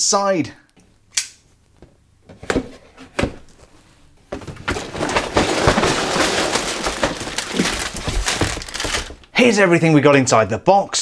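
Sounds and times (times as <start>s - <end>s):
plastic bags crinkling: 4.4s - 9.3s.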